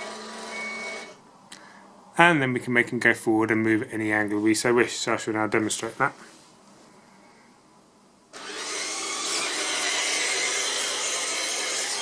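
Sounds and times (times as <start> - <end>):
toy robot motors and gearing: 0.0 - 1.2, 8.4 - 12.0.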